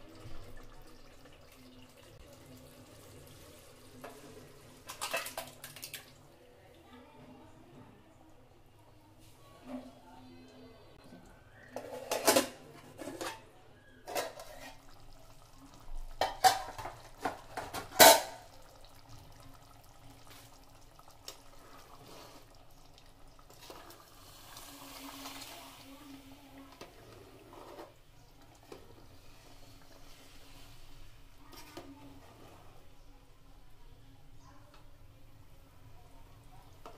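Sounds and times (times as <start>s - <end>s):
ladle stirring thick gravy: 11.5s - 33.0s.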